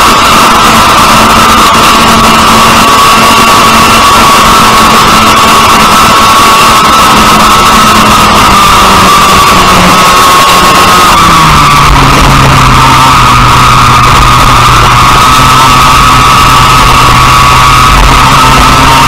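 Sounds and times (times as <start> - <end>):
kart engine revving: 0.0 - 19.0
music playing: 0.0 - 19.0.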